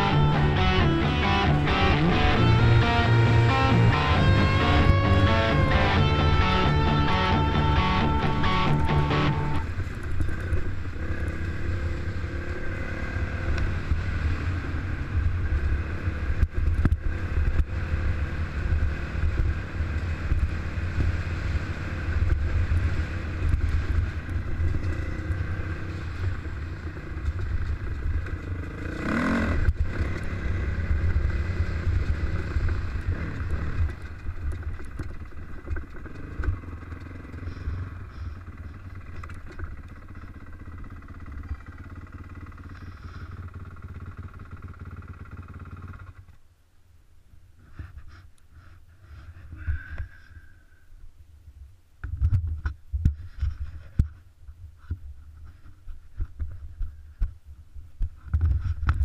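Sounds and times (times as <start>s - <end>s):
dirt bike engine running: 0.0s - 46.4s.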